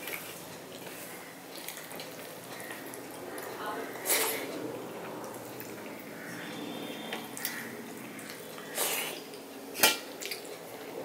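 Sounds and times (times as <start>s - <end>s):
wet chewing and lip-smacking: 0.0s - 3.5s, 7.1s - 10.9s.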